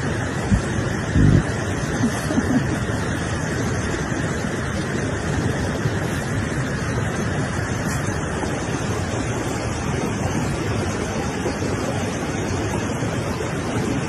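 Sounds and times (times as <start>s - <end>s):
wind buffeting microphone: 0.0s - 3.0s.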